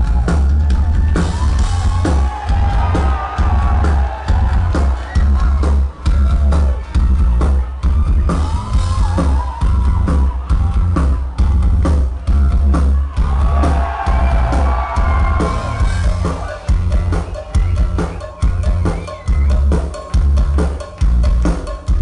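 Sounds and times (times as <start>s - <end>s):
heavy booming bass: 0.0s - 21.4s
drum hits: 1.0s - 5.6s.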